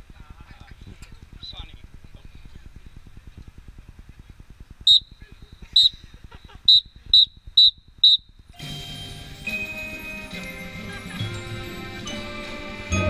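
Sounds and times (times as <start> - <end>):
fast low pulse: 0.0 - 8.5
whistle blasts: 4.9 - 8.4.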